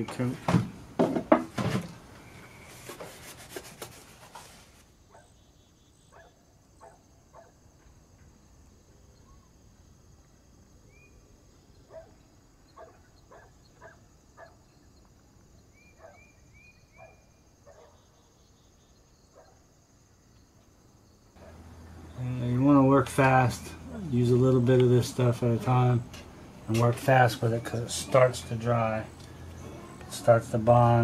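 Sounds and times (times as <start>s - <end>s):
rubbing and scraping strokes: 2.5s - 5.0s
crickets trilling: 4.8s - 31.0s.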